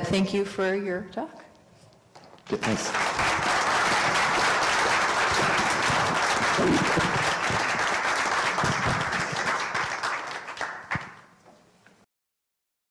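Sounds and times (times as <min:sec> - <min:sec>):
audience applauding: 0:02.5 - 0:11.4.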